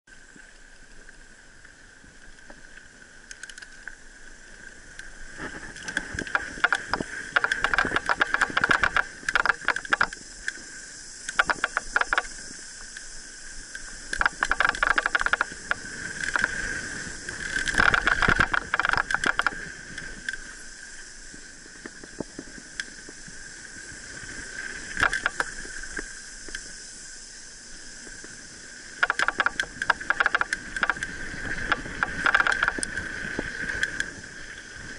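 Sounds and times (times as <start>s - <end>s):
bike rattling over bumps: 5.6s - 10.2s, 14.2s - 19.6s, 29.0s - 33.1s.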